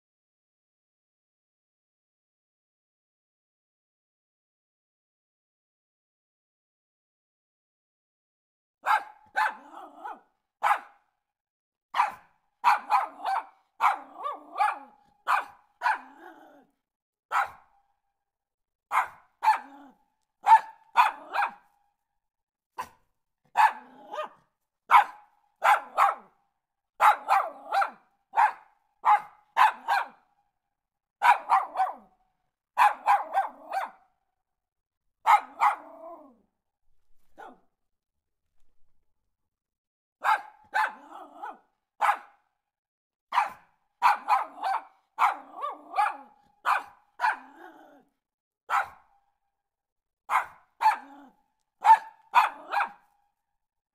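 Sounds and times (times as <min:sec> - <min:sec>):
small dog barking: 0:08.8 - 0:11.1, 0:11.9 - 0:16.7, 0:17.3 - 0:17.9, 0:18.9 - 0:21.8, 0:22.8 - 0:26.4, 0:27.0 - 0:30.3, 0:31.2 - 0:32.2, 0:32.8 - 0:34.2, 0:35.2 - 0:36.4, 0:37.2 - 0:37.7, 0:40.2 - 0:42.5, 0:43.3 - 0:48.1, 0:48.7 - 0:49.2, 0:50.3 - 0:53.2.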